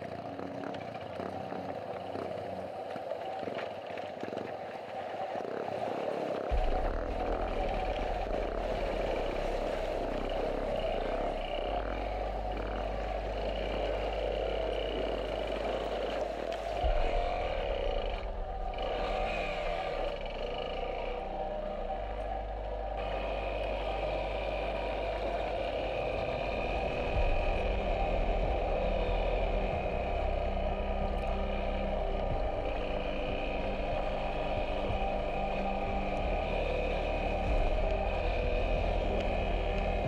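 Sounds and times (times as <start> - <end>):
motorcycle engine running: 6.5 - 40.0.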